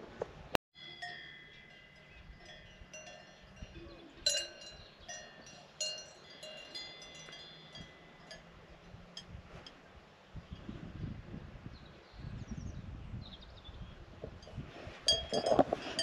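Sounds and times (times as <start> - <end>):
cowbells clanging: 0.8 - 9.8, 14.4 - 16.0.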